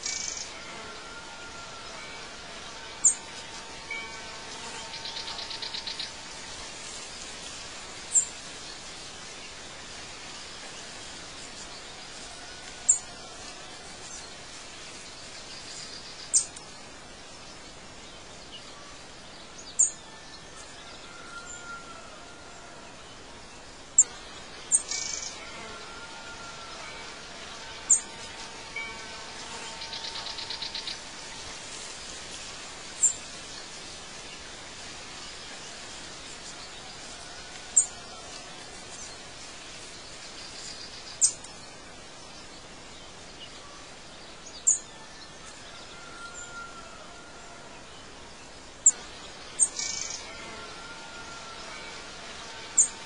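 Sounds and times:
birds chirping and trilling: 0.0 - 6.4, 15.0 - 22.0, 22.9 - 32.1, 37.7 - 53.0
outdoor hiss: 0.0 - 53.0.

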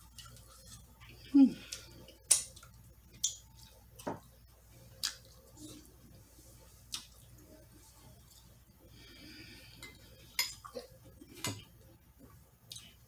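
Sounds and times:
chewing: 0.0 - 3.8.

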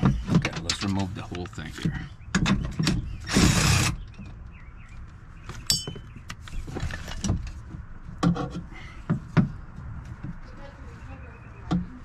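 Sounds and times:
light clicks and knocks of parts: 0.0 - 3.0
ringing metallic clink: 5.7 - 6.0.

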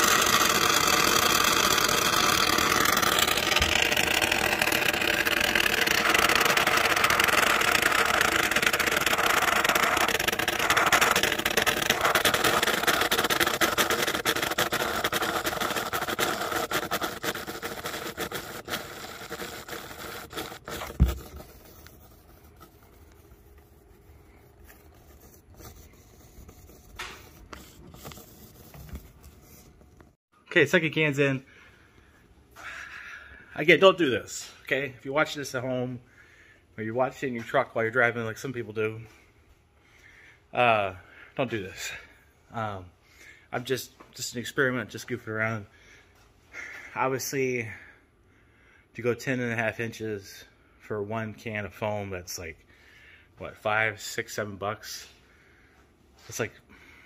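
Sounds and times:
aerosol foam can hissing: 0.0 - 23.3.

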